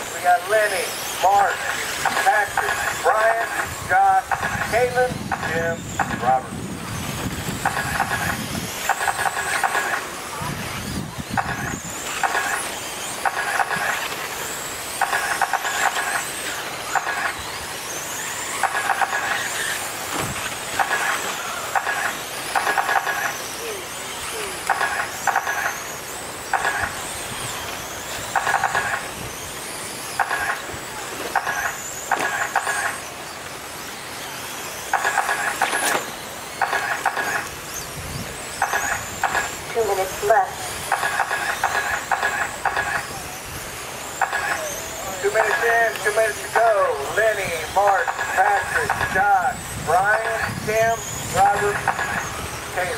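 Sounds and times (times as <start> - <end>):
rc car motors whining: 0.0 - 52.9.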